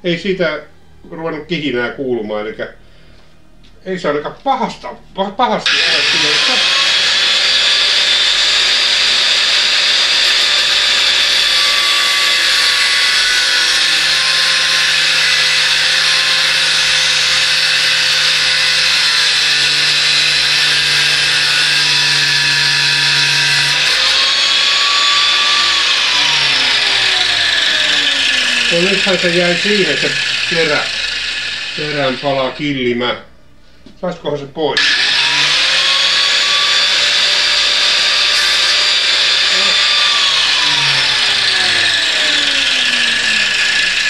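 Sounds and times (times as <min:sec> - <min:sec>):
grinding steel drill bit: 0:05.7 - 0:32.6, 0:34.8 - 0:44.0
grinder wheel whining: 0:05.7 - 0:32.7, 0:34.8 - 0:44.0.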